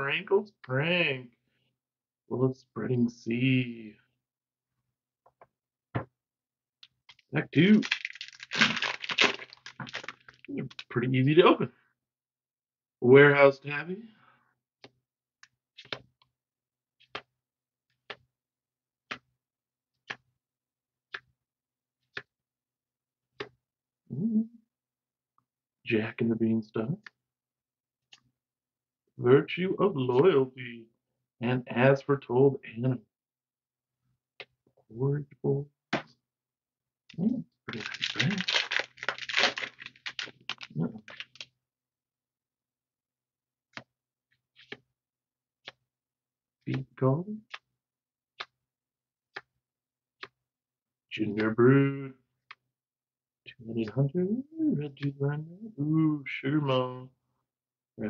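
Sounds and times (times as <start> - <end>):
foil wrapper crinkling: 7.6 - 10.5, 37.7 - 41.4
trading cards snapping: 37.7 - 41.4.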